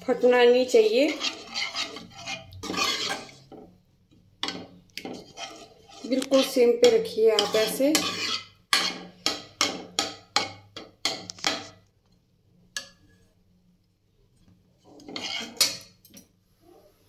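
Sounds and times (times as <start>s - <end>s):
spoon scraping rattle: 0.8s - 3.5s, 5.0s - 9.0s
spoon knocking against pan: 6.8s - 11.8s.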